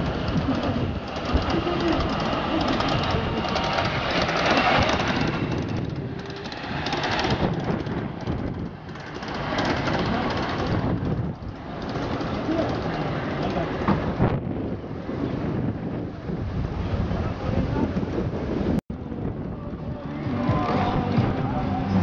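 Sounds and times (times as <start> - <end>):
small train wheels on rails: 0.0 - 16.9.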